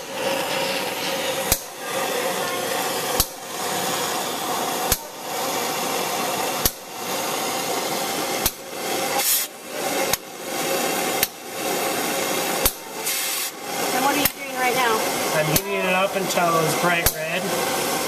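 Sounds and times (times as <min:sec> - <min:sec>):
sharp pops: 0:00.0 - 0:01.9, 0:02.8 - 0:05.4, 0:06.6 - 0:07.0, 0:08.3 - 0:10.4, 0:11.0 - 0:15.8
cutting torch flame hissing: 0:00.0 - 0:18.0.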